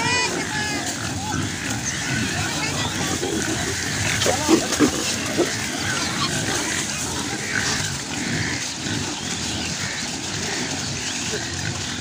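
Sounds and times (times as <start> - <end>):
pigs grunting: 0.0 - 12.0
short high pig calls: 0.0 - 12.0.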